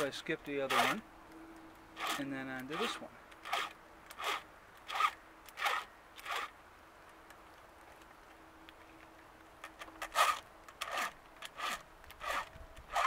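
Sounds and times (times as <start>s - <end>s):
file rasping on chain teeth: 0.6s - 1.0s, 2.0s - 6.5s, 10.1s - 13.0s.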